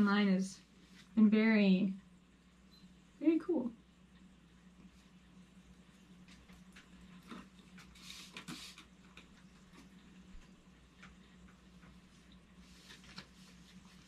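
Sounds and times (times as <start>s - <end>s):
low steady hum: 0.0s - 14.0s
cloth rubbing hiss: 7.9s - 8.9s, 12.6s - 14.0s.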